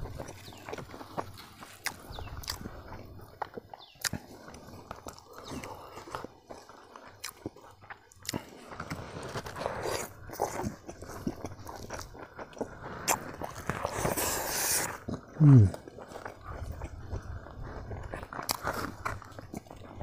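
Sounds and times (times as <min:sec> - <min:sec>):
person chewing food: 0:00.0 - 0:20.0
sucking slurp: 0:12.7 - 0:17.5.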